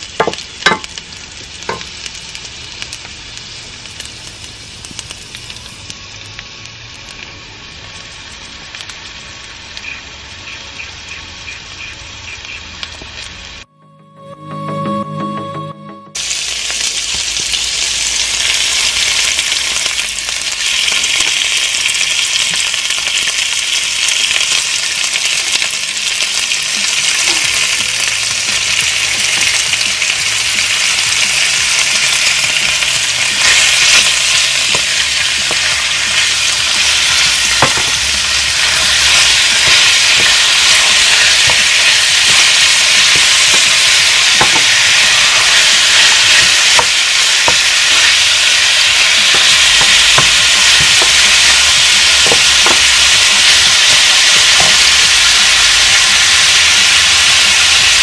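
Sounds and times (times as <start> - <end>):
meat sizzling in oil: 0.0 - 13.6, 16.2 - 58.0
wooden spoon knocking pan: 0.2 - 0.9, 52.2 - 52.9.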